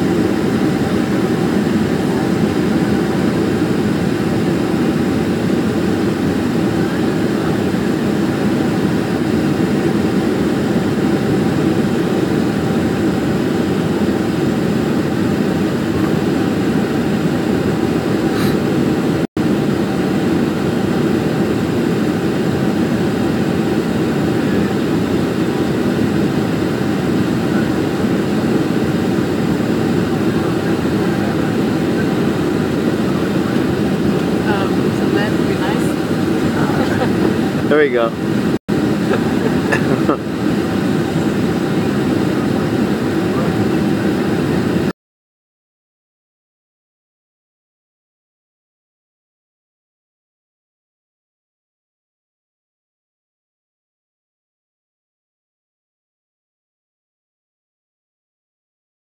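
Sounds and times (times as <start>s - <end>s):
jet engine drone: 0.0s - 44.9s.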